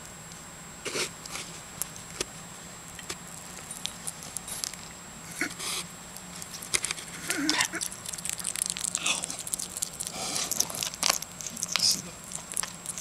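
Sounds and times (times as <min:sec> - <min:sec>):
hedgehog chewing crunchily: 0:02.9 - 0:05.0, 0:06.2 - 0:13.0.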